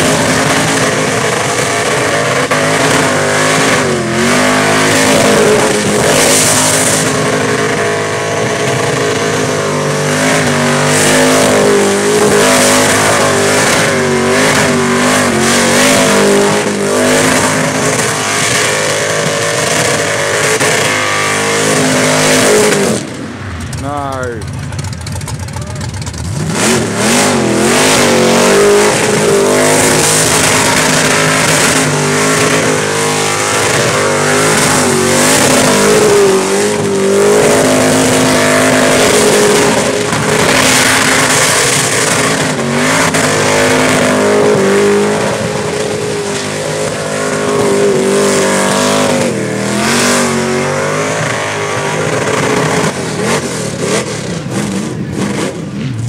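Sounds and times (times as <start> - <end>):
car engine revving high: 0.0 - 56.0.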